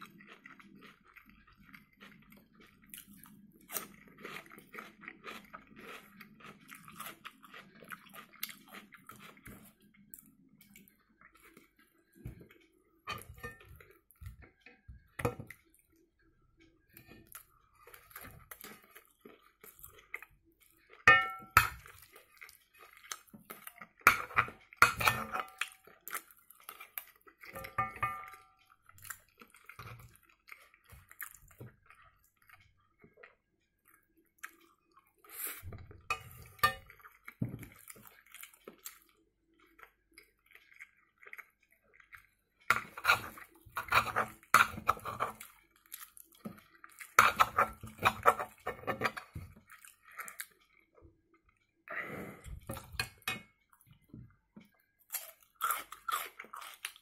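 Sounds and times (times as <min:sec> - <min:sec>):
chewing: 0:00.0 - 0:16.0, 0:16.6 - 0:57.0
cutlery scraping a frying pan: 0:24.1 - 0:25.6, 0:27.5 - 0:28.5, 0:36.1 - 0:36.9, 0:42.7 - 0:45.4, 0:47.2 - 0:49.4.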